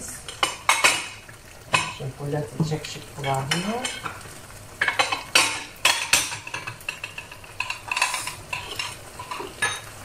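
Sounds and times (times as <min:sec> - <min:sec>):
food frying in a pan: 0:00.0 - 0:10.0
glass dishes clinking: 0:04.8 - 0:10.0.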